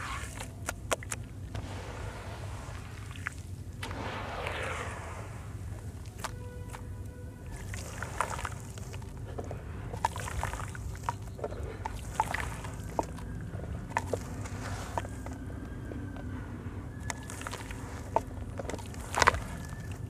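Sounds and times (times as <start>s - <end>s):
wet sloshing in tub: 0.0s - 4.8s, 5.4s - 16.3s, 16.9s - 20.0s
small splashes: 0.0s - 15.5s, 17.0s - 20.0s
soft hiss of soaking powder: 1.4s - 11.3s.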